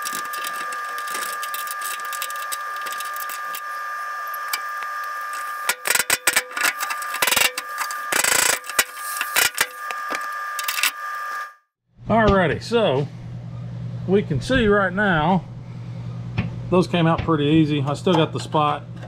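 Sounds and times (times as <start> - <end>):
steady mechanical whine: 0.0 - 19.0.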